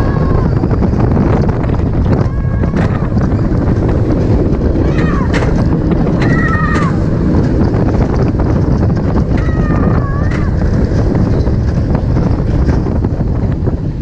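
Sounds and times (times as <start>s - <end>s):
riders screaming: 0.0s - 0.9s, 2.2s - 3.4s, 4.6s - 7.4s, 9.2s - 11.0s
roller coaster rumble: 0.0s - 14.0s
wind rush over microphone: 0.0s - 14.0s.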